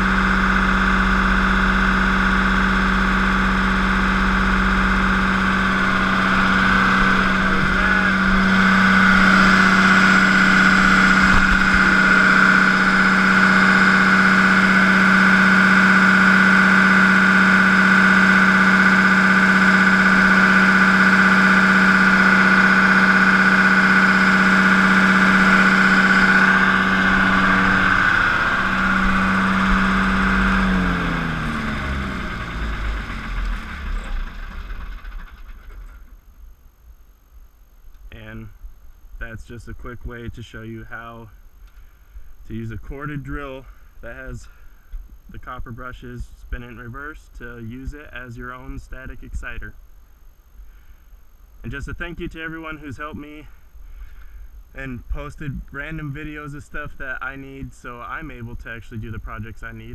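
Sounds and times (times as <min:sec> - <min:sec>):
diesel generator humming: 0:00.0 - 0:46.0.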